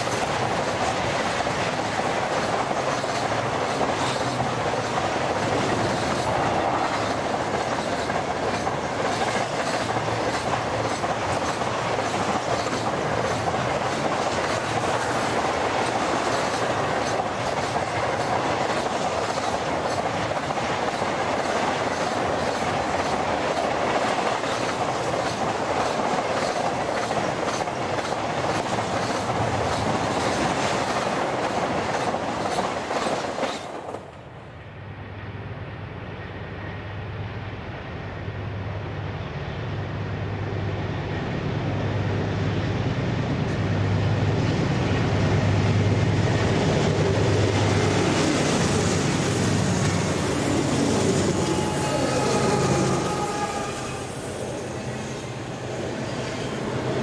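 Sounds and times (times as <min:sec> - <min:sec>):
diesel locomotive engine drone: 0:00.0 - 0:31.7, 0:34.0 - 0:57.0
train wheels clickety-clack: 0:00.0 - 0:34.2
container cars rumbling: 0:43.2 - 0:57.0.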